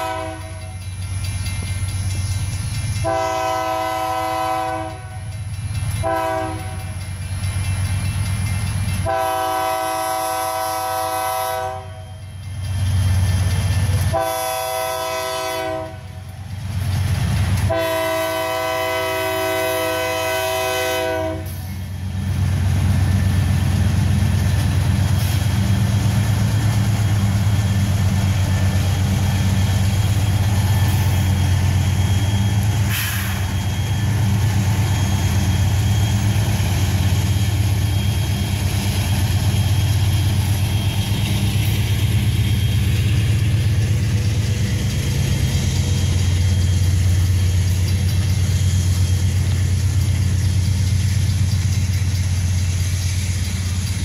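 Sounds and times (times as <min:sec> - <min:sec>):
locomotive air horn blasts: 0:00.0 - 0:00.7, 0:03.0 - 0:05.2, 0:06.0 - 0:06.8, 0:09.0 - 0:12.0, 0:14.1 - 0:16.2, 0:17.7 - 0:21.6
diesel locomotives rumbling past: 0:00.0 - 0:54.0
train wheels on rails: 0:00.0 - 0:54.0.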